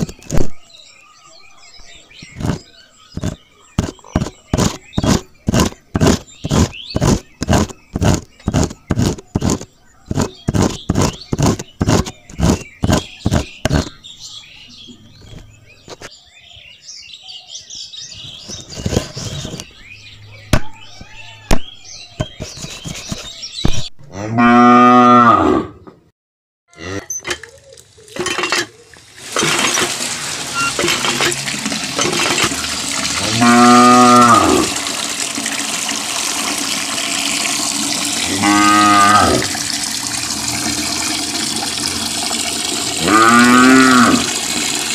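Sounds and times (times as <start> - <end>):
water spraying into plastic tray: 2.2 - 13.9, 29.2 - 44.9
hand tool scraping in sand: 3.2 - 13.9
cow mooing: 24.0 - 25.8, 26.7 - 27.2, 33.2 - 34.8, 38.2 - 39.6, 43.0 - 44.4.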